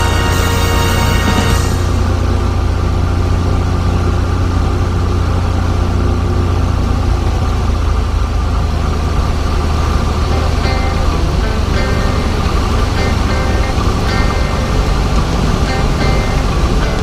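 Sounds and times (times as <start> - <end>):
propeller plane engine droning: 0.0 - 17.0.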